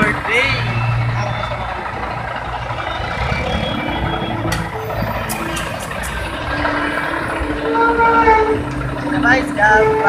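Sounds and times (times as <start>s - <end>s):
street traffic: 0.0s - 10.0s
vehicle engine rumble: 0.0s - 10.0s
steady tone: 2.1s - 10.0s.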